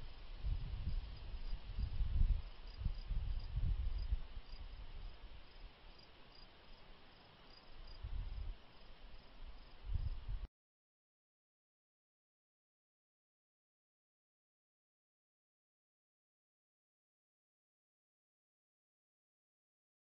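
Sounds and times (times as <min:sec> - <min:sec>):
crickets chirping: 0:00.0 - 0:10.3.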